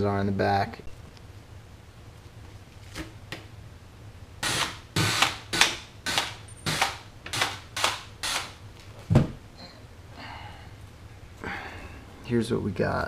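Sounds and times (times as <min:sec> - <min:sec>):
cordless drill bursts: 0:04.4 - 0:08.6.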